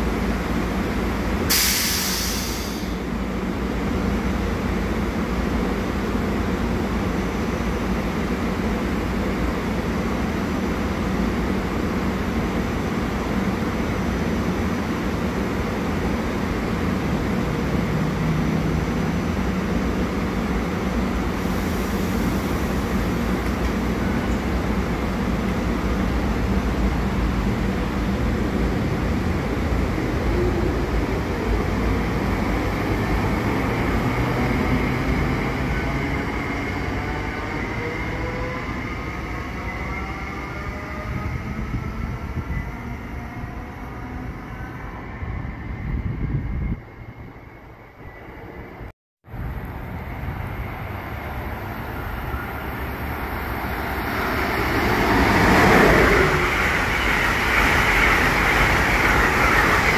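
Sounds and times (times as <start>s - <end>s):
train rumbling: 0.0s - 59.9s
short hiss: 1.5s - 3.0s.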